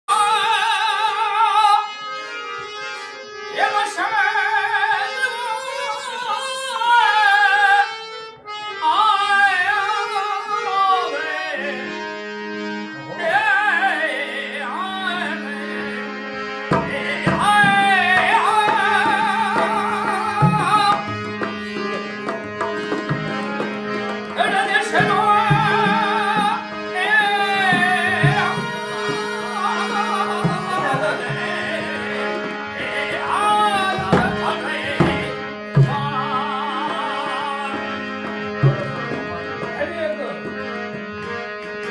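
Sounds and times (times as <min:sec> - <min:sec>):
harmonium held notes: 0:00.0 - 0:41.9
man singing ornamented lines: 0:13.1 - 0:16.1, 0:16.8 - 0:21.2, 0:24.3 - 0:38.1
dholak drum steady beat: 0:16.6 - 0:41.2.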